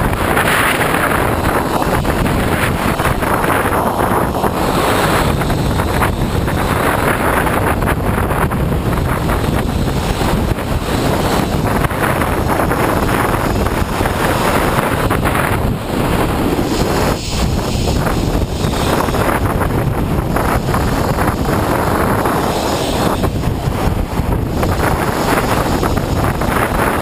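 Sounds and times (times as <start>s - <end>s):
wind buffeting camera: 0.0s - 27.0s.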